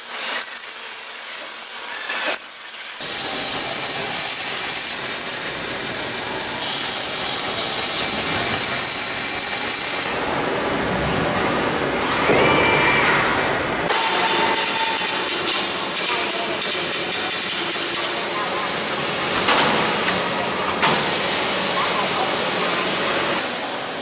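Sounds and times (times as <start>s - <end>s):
welding arc hissing: 0.0s - 10.2s
machine noise: 0.0s - 24.0s
brief machine whine: 10.7s - 15.3s.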